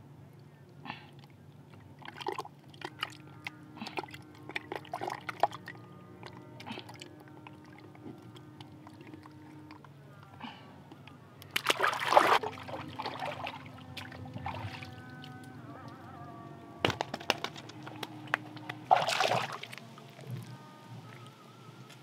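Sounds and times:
wet mud squelching: 0:11.4 - 0:15.4, 0:17.2 - 0:19.8.

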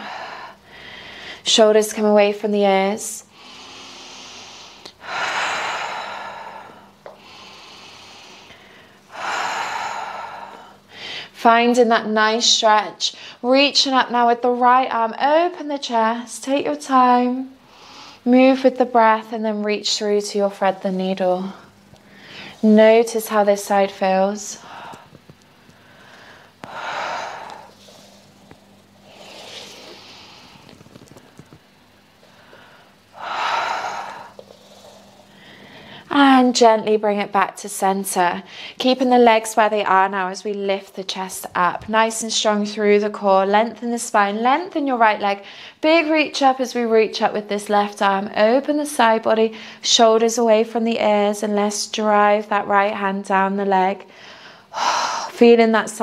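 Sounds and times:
woman breathing deeply: 0:00.0 - 0:01.5, 0:03.3 - 0:11.4, 0:17.6 - 0:18.3, 0:21.4 - 0:22.7, 0:24.5 - 0:36.1, 0:54.1 - 0:55.4.

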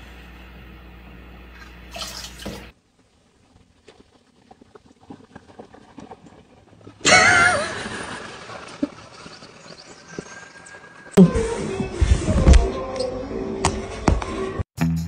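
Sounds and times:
animal call with wavering pitch: 0:11.1 - 0:13.5.

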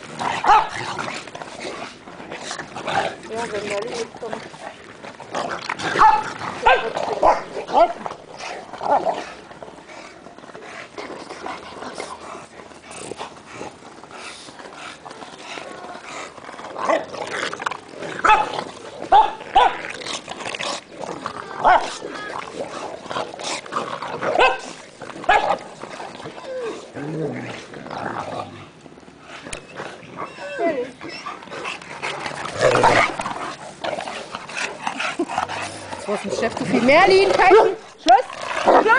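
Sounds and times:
dogs barking at play: 0:00.0 - 0:09.5, 0:15.0 - 0:27.0, 0:29.5 - 0:38.9.

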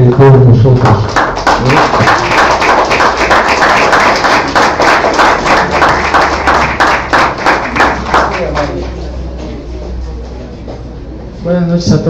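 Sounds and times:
audience clapping: 0:00.0 - 0:09.2.

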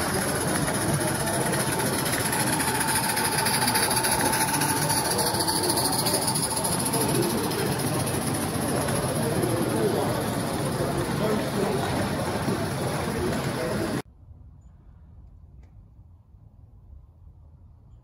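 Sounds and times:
steam locomotive hissing: 0:00.0 - 0:14.0
wagons rumbling over track: 0:00.0 - 0:14.0.

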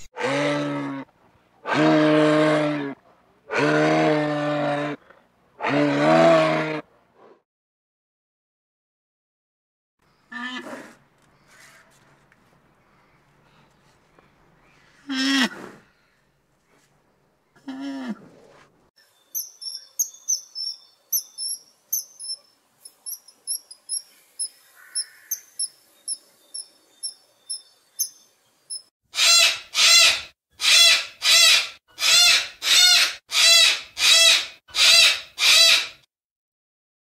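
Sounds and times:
bird chirping quickly: 0:19.2 - 0:28.9
cockatoo screeching: 0:29.2 - 0:36.1.

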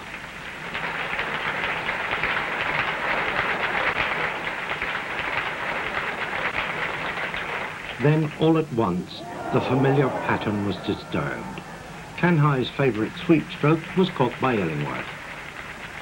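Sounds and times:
crowd applauding: 0:08.0 - 0:15.7.

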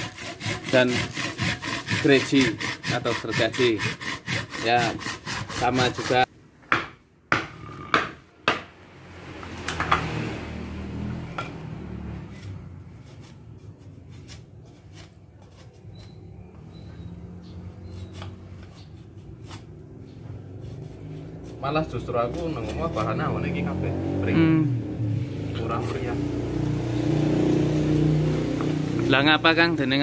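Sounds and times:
blade ticks and scrapes on bamboo: 0:00.0 - 0:06.3, 0:17.9 - 0:19.8, 0:20.6 - 0:23.3
machete chopping bamboo: 0:06.7 - 0:08.8.

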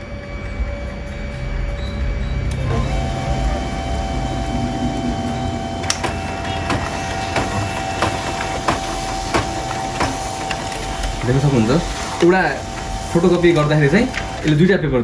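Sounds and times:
printer motor whine: 0:00.0 - 0:15.0
printer paper feed clicks: 0:05.8 - 0:14.7.

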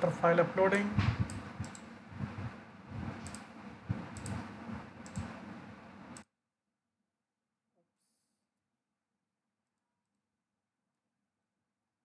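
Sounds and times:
microphone hiss: 0:00.0 - 0:06.2
low room hum: 0:00.0 - 0:06.3
computer mouse clicking: 0:01.2 - 0:02.4, 0:03.0 - 0:05.4.

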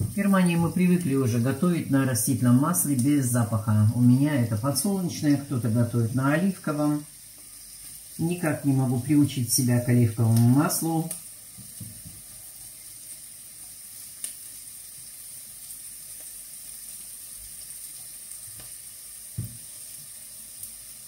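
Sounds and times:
vegetables sizzling in oil: 0:00.0 - 0:21.0
light knocks on pot: 0:19.4 - 0:19.6.

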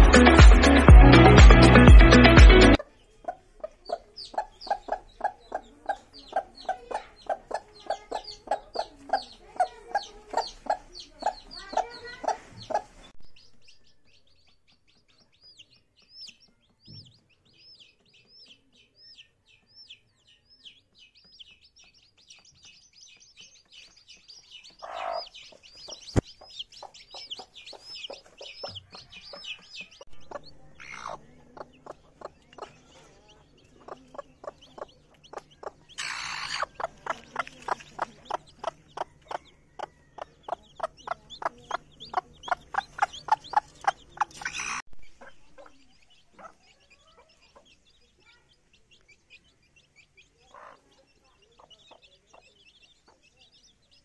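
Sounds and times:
chicks peeping: 0:00.0 - 0:54.0
hen clucking: 0:02.8 - 0:13.1, 0:23.8 - 0:47.8, 0:49.0 - 0:53.7.

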